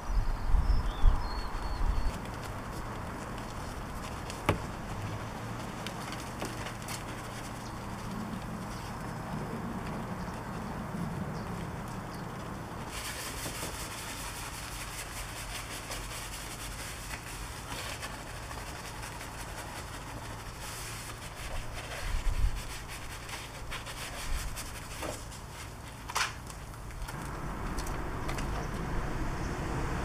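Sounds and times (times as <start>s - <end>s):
brush scrubbing wet foam: 2.3s - 9.0s, 12.9s - 26.0s
dull knocks: 4.4s - 4.9s.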